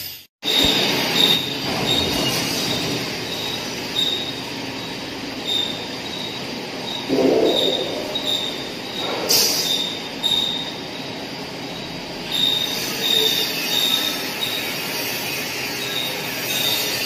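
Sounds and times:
high-pitched machine whine: 0.0s - 17.0s
factory machinery din: 0.4s - 17.0s
sharp metal clank: 7.1s - 9.8s.

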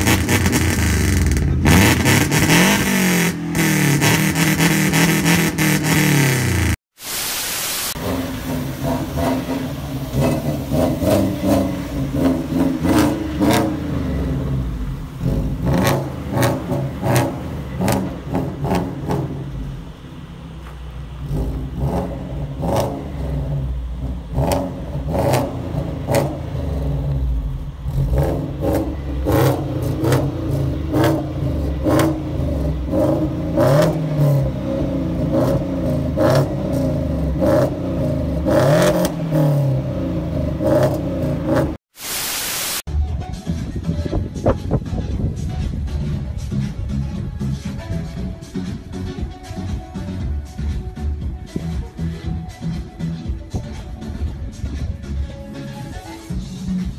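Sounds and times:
car engine revving hard: 0.0s - 6.8s, 8.0s - 20.3s, 21.1s - 41.8s.

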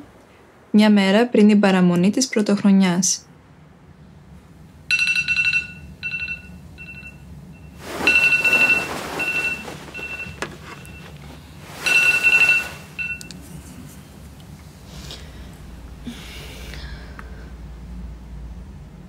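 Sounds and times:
smartphone alarm beeping: 4.9s - 11.2s, 11.8s - 13.3s.

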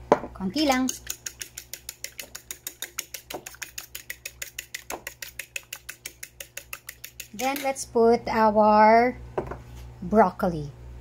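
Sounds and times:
fork clicking against ceramic bowl: 0.7s - 7.7s.

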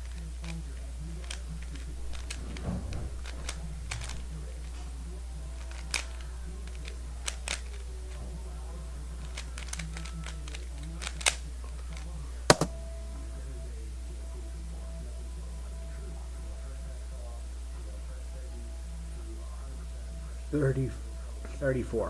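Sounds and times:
steady low hum: 0.0s - 22.0s
plastic cube layers clicking: 1.2s - 4.3s, 5.6s - 7.8s, 9.2s - 12.7s.

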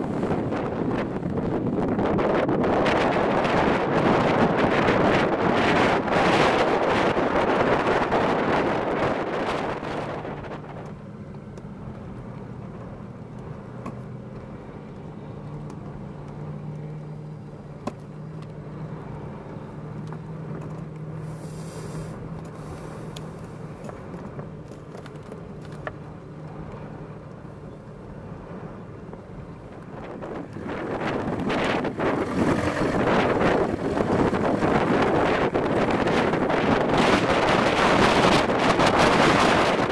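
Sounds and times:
engines humming at low revs: 0.0s - 39.9s
short hiss: 21.2s - 23.2s.

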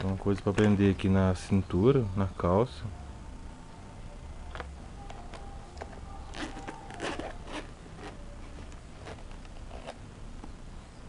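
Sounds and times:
zipper pulled open: 6.3s - 10.0s.

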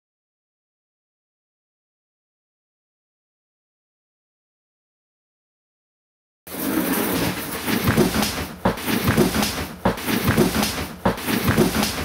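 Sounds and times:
knocks clatters and thumps: 6.5s - 12.0s.

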